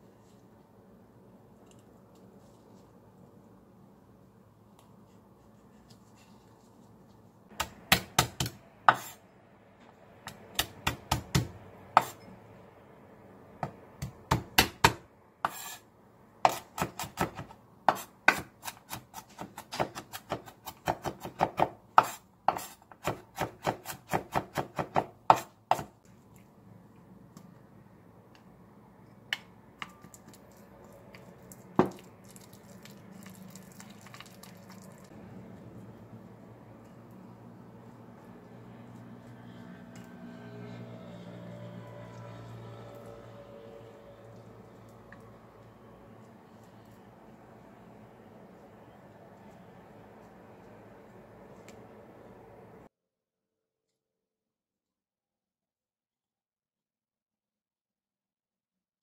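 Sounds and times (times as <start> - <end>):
knife chopping on wooden board: 7.5 - 9.2, 10.3 - 12.2, 13.6 - 15.8, 16.4 - 25.9.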